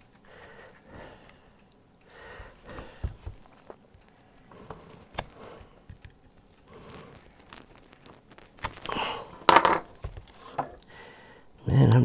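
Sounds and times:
tape tearing and crinkling: 3.6s - 10.5s.

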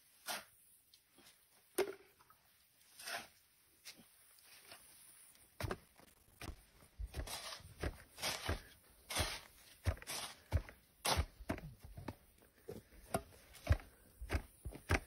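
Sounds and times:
dull thuds of earth being rammed: 5.6s - 12.2s.

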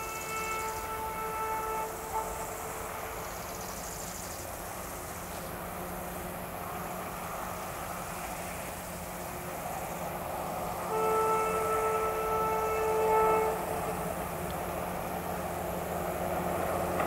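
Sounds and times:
locomotive horn blasts: 0.0s - 3.5s, 10.7s - 15.2s
locomotive diesel engine drone: 0.0s - 17.0s.

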